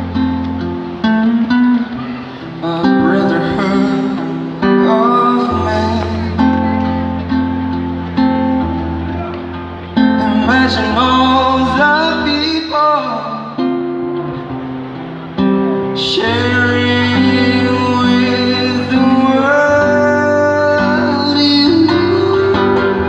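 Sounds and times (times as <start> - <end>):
acoustic guitar: 0.0 - 23.0
man singing into microphone: 2.2 - 7.1, 10.0 - 13.8, 15.8 - 23.0.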